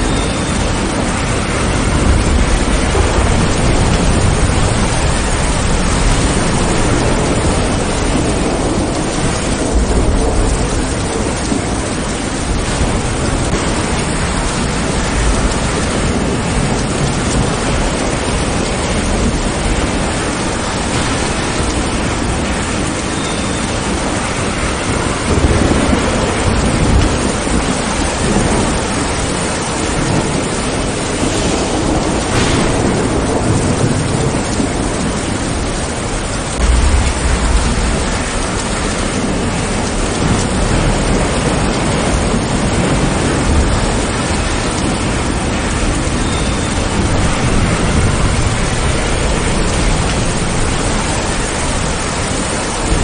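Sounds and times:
steady rain pouring: 0.0 - 53.0
thunder rumbling low: 0.0 - 53.0.

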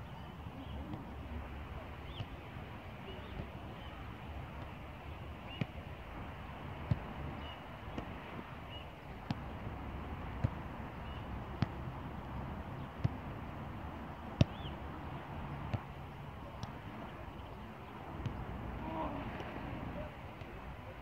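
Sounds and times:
steady outdoor hiss: 0.0 - 21.0
football kicks on artificial turf: 2.1 - 14.9.

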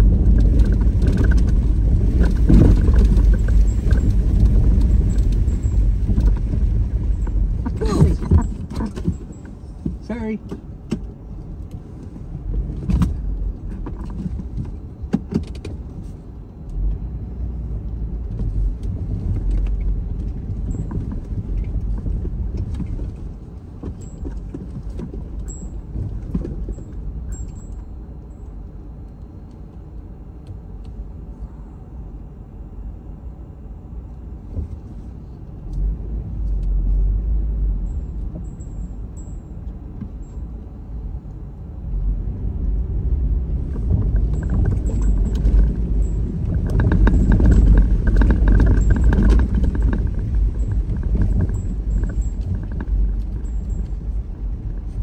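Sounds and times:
knocks and rattles: 0.0 - 11.1, 43.5 - 55.0
car driving rumble: 0.0 - 55.0.

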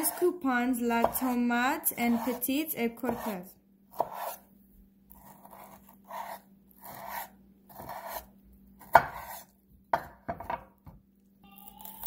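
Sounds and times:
knife cutting tomato on board: 1.0 - 4.5, 5.1 - 11.0.

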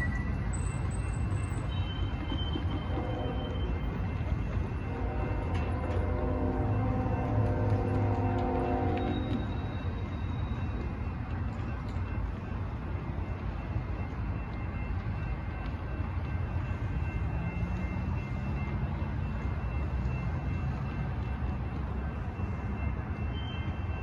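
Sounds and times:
road traffic rumble: 0.0 - 23.9.

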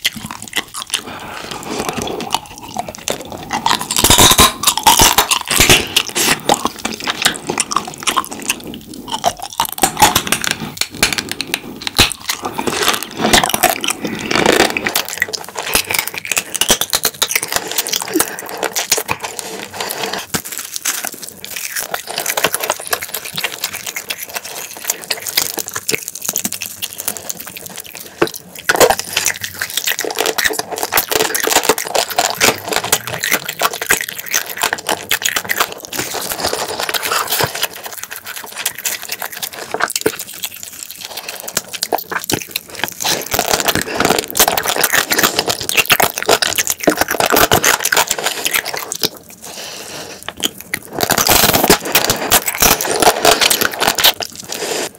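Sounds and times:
wet chewing and lip smacking: 0.0 - 54.9.

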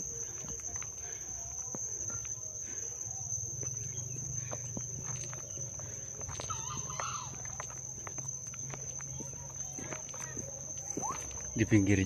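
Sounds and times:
high-pitched insect drone: 0.0 - 12.0
fowl call: 6.4 - 7.6.

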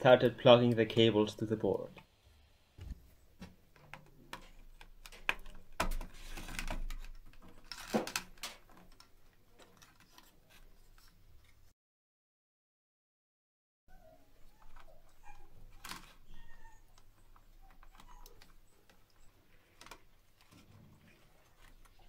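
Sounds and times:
wires clicking and rustling: 3.4 - 11.6, 14.5 - 22.0.

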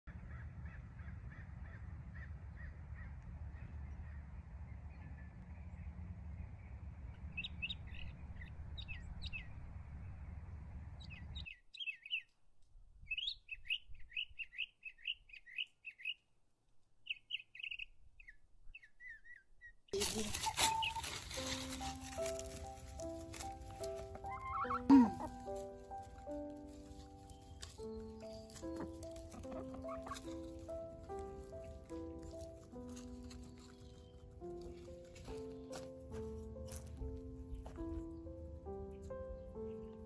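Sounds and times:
wind rumbling on microphone: 0.1 - 11.4
birds chirping: 0.1 - 12.4, 17.0 - 40.0.

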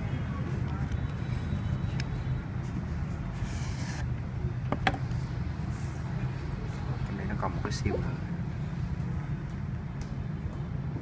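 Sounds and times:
box knocking on table: 4.7 - 5.0.

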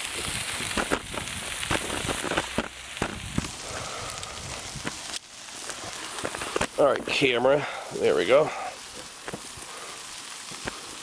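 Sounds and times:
burger patties sizzling on griddle: 0.0 - 11.0
fat spattering pops: 0.2 - 3.9, 4.6 - 6.8, 8.9 - 9.7.

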